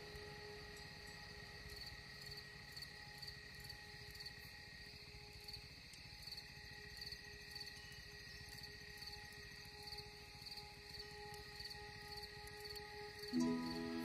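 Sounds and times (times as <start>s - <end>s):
faint drone: 0.0s - 14.0s
insects chirping: 0.0s - 14.0s.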